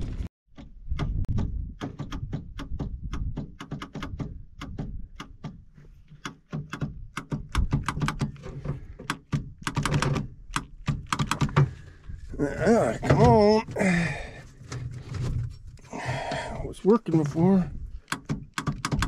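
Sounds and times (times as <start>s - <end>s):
rapid sharp clicks and knocks: 0.5s - 11.8s, 18.0s - 19.0s.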